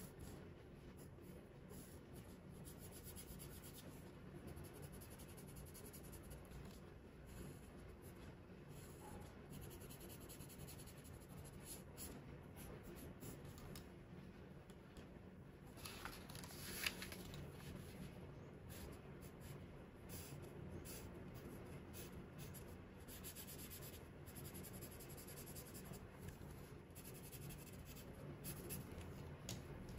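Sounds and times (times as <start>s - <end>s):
paper rustling and scraping: 15.8s - 18.1s.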